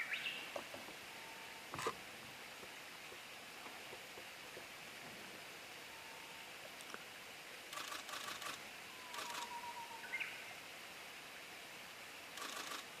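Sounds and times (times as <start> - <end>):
background hiss: 0.0 - 13.0
camera shutter clicks: 7.7 - 9.6, 12.4 - 12.9.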